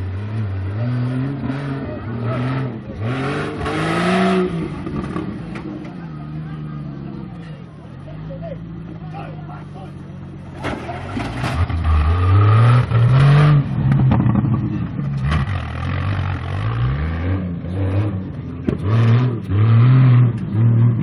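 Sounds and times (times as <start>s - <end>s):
car engine revving hard: 0.0s - 5.6s, 11.6s - 21.0s.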